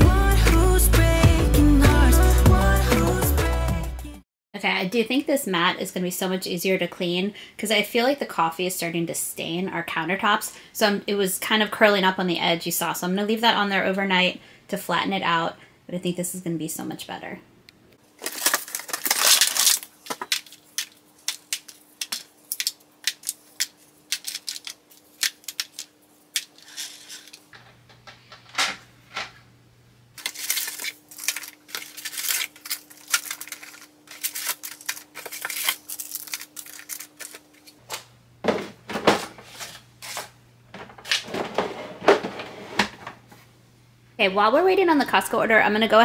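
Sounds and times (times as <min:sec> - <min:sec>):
crinkling: 0:18.1 - 0:29.4, 0:30.2 - 0:37.8
objects clicking and clattering: 0:18.2 - 0:29.4, 0:30.2 - 0:37.4.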